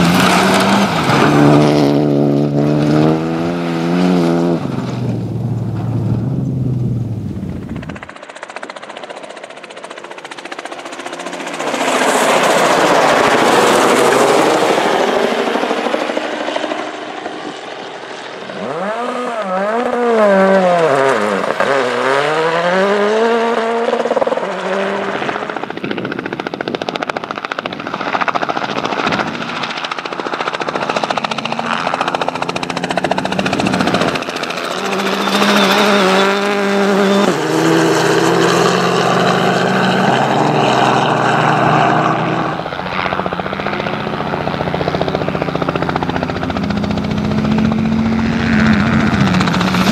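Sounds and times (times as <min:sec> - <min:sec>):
rally car engines revving: 0:00.0 - 0:08.1, 0:11.4 - 0:25.7, 0:30.6 - 0:49.9
gravel noise: 0:00.0 - 0:10.4.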